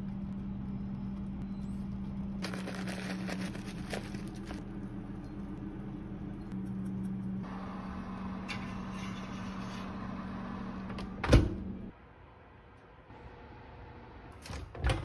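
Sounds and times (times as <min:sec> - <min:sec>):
oven fan humming: 0:00.0 - 0:11.9
oven door shutting with a thud: 0:10.9 - 0:11.7.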